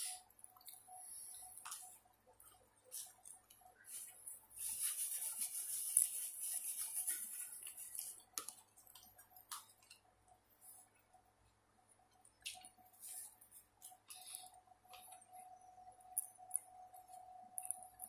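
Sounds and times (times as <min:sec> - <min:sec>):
paper napkin rustling: 0:03.9 - 0:08.2.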